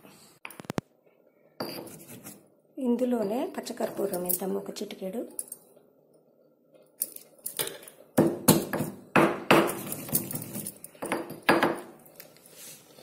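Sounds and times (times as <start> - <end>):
pestle knocking in stone mortar: 8.2 - 9.9.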